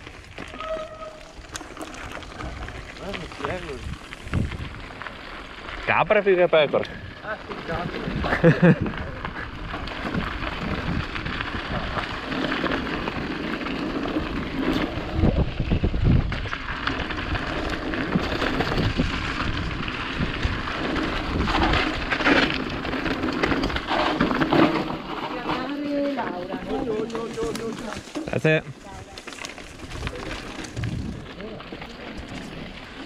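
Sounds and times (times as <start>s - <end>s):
bike rattling: 0.0s - 33.0s
bike tyres crunching on gravel: 0.0s - 33.0s
low microphone rumble: 29.8s - 33.0s.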